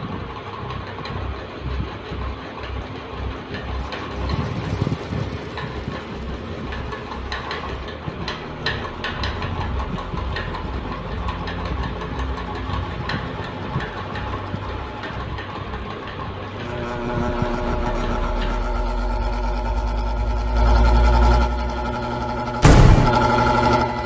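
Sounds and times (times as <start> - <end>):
fan clicks and rattles: 0.0 - 17.2
ceiling fan rumbling: 0.0 - 24.0.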